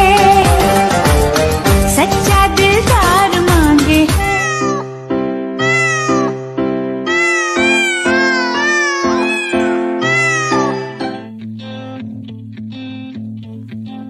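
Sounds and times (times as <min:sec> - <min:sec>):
background music with chords: 0:00.0 - 0:13.9
cat meowing: 0:04.2 - 0:04.9, 0:05.6 - 0:06.4, 0:07.1 - 0:11.3.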